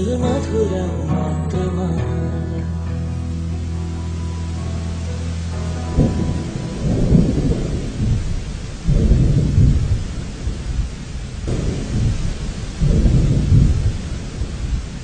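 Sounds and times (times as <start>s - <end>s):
wind buffeting microphone: 6.0s - 15.0s.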